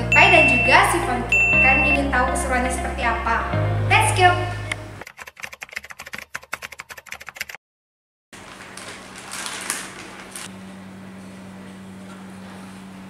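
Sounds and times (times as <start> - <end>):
keyboard typing clicks: 5.0 - 7.6
rustling and handling noises: 8.4 - 10.5.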